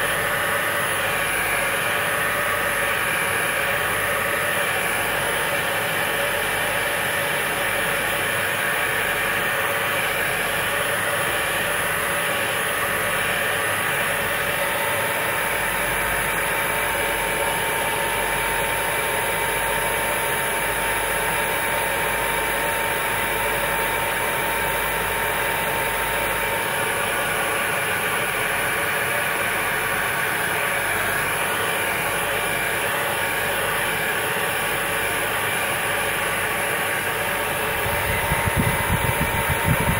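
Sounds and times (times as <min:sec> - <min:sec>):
hair dryer running: 0:36.5 - 0:39.9.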